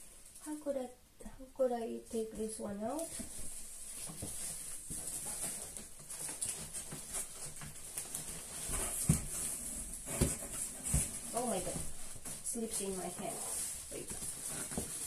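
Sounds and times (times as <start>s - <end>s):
cardboard box rustling and scraping: 3.1s - 15.0s.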